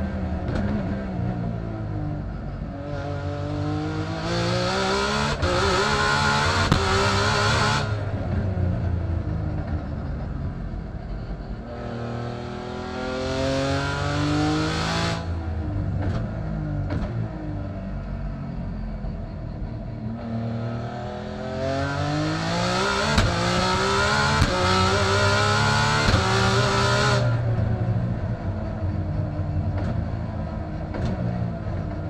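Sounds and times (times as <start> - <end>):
race car engine accelerating: 0.0 - 10.2, 19.6 - 32.0.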